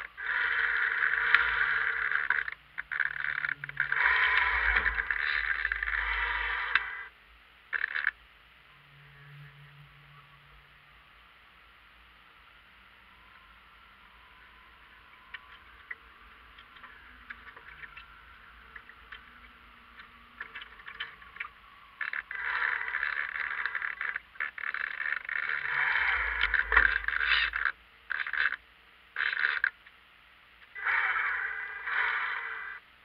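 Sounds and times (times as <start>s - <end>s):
small ticks: 0.0s - 7.0s, 7.7s - 8.2s, 15.0s - 28.6s, 29.2s - 30.0s.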